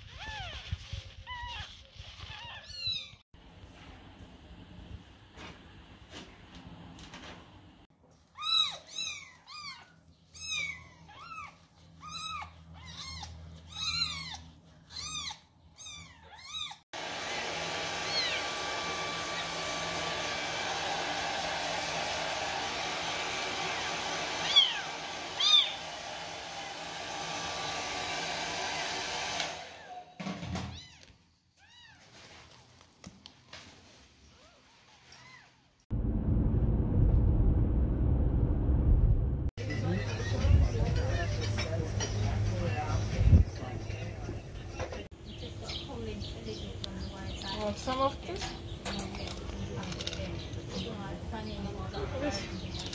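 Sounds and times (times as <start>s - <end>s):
hair dryer running: 17.0s - 30.2s.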